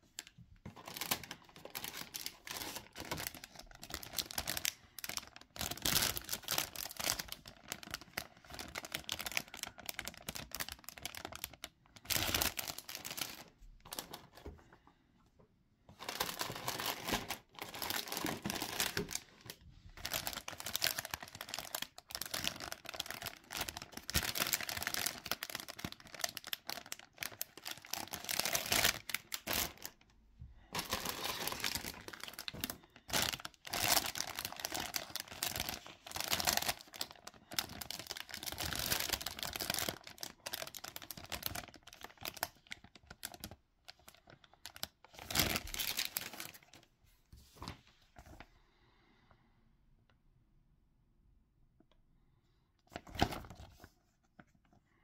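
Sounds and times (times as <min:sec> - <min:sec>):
plastic bags crinkling: 0:00.0 - 0:14.6, 0:15.9 - 0:46.8.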